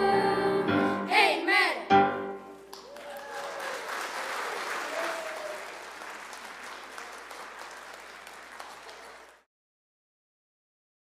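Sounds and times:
audience applauding: 2.7s - 9.5s.

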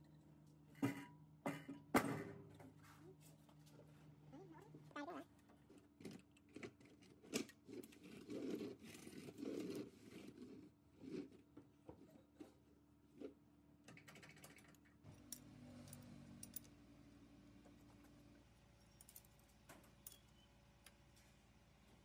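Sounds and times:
small metal parts clicking: 18.9s - 21.0s.

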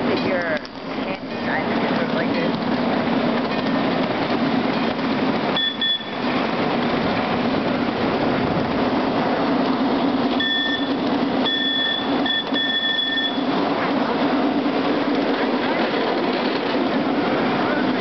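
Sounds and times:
miniature train rumbling on track: 0.0s - 18.0s
train whistle blasts: 10.4s - 13.5s.

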